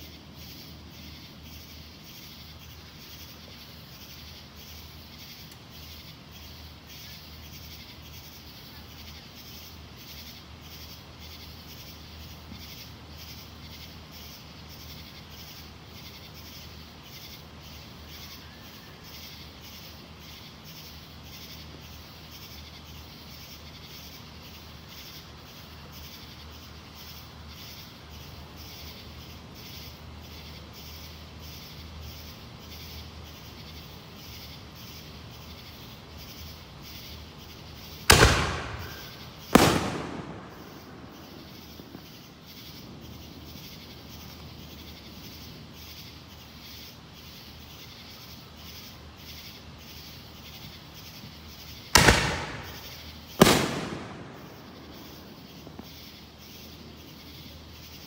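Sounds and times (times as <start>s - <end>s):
night insects chirping: 0.0s - 58.0s
firework bang: 38.1s - 42.1s, 52.0s - 55.9s.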